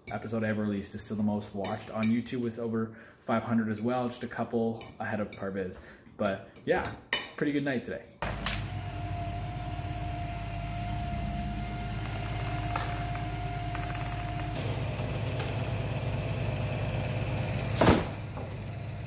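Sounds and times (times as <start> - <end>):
steady whine: 8.2 - 17.5
truck engine running: 8.2 - 19.0.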